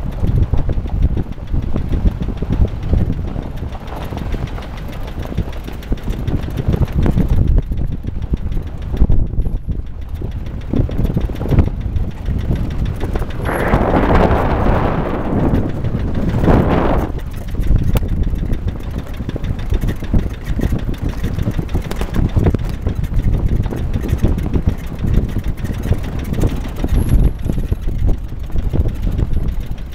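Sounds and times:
engine and tyre rumble: 0.0s - 29.9s
rushing noise: 12.9s - 17.8s.

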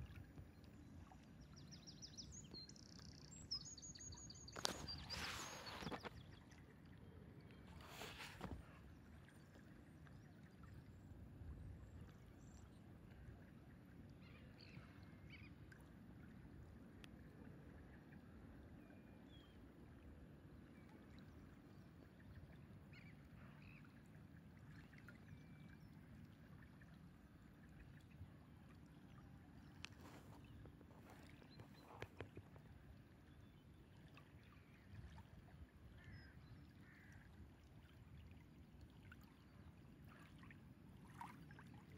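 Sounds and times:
faint bird calls: 36.0s - 37.3s.

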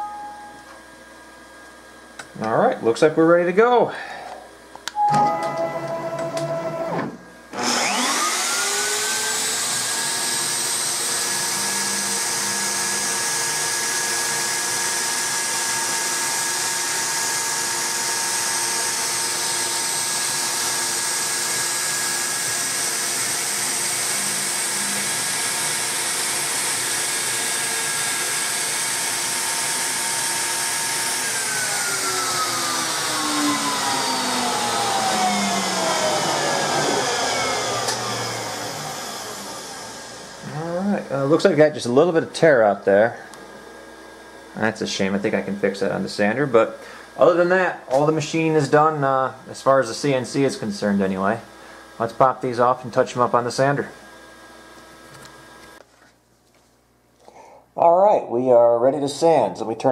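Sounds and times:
router spindle whining: 5.0s - 44.4s.

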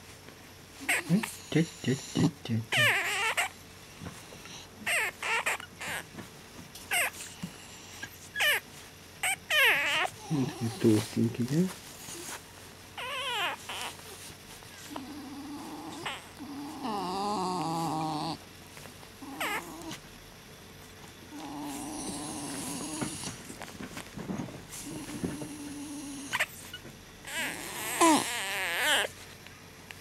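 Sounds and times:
puppy squeaking: 0.8s - 1.3s, 2.7s - 3.6s, 4.8s - 6.1s, 6.9s - 7.3s, 8.0s - 10.8s, 13.0s - 15.0s, 15.8s - 18.4s, 19.2s - 20.0s, 26.2s - 29.2s
puppy whining: 0.8s - 20.1s, 20.8s - 29.4s.

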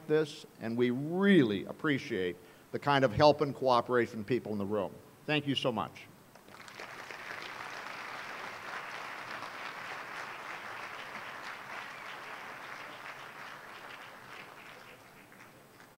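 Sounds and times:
audience applauding: 6.4s - 15.9s.

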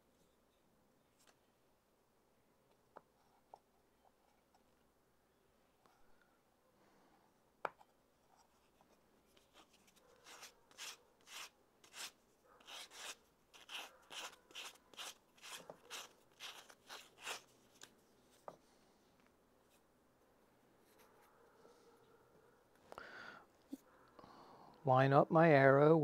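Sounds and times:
sandpaper rubbing on wood: 10.2s - 17.5s.

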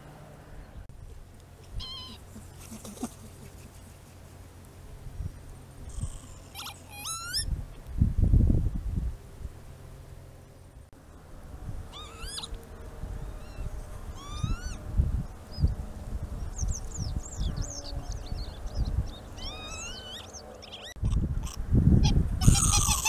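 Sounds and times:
lapwings calling: 1.6s - 4.0s, 5.9s - 7.5s, 11.9s - 12.6s, 13.2s - 14.8s, 19.2s - 21.0s
wind rumble on microphone: 4.9s - 6.6s, 7.2s - 9.7s, 11.5s - 20.4s, 21.0s - 23.0s.

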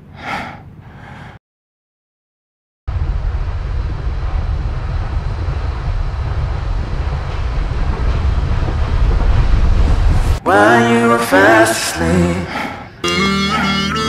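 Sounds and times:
train rumbling: 2.9s - 12.9s.

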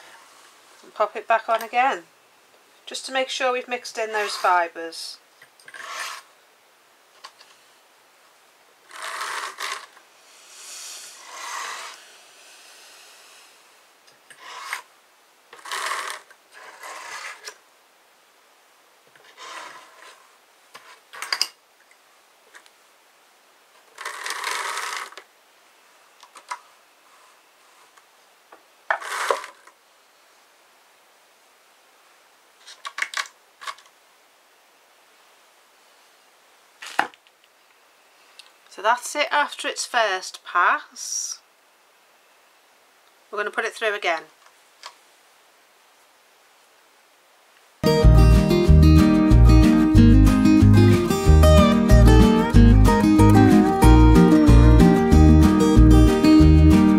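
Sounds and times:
drum carder rasping and scraping: 8.9s - 13.7s.

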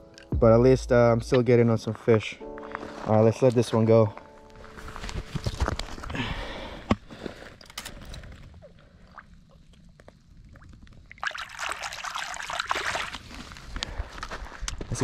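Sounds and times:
water splashing: 9.0s - 13.3s.

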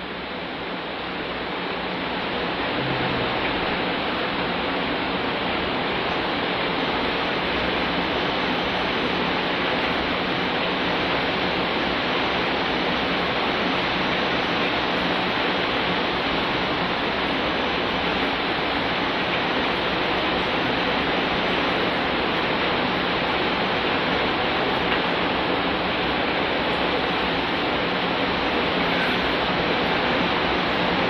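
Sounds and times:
steady rushing hiss: 0.0s - 31.0s.

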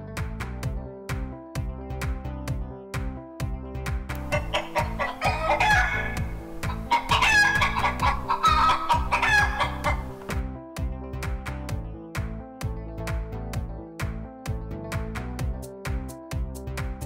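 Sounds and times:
electronic music with steady beat: 1.6s - 17.0s
chicken clucking: 4.2s - 10.3s.

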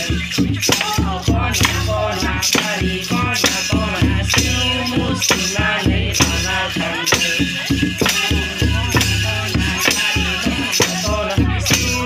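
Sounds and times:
beat with heavy bass: 0.0s - 12.0s
rattling percussion: 0.0s - 12.0s
person singing: 0.7s - 12.0s.

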